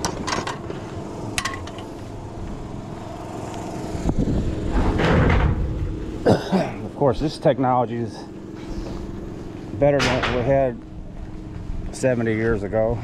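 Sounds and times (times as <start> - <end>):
steady low rumble: 0.0 - 13.0
sheet metal rattling: 4.6 - 6.0.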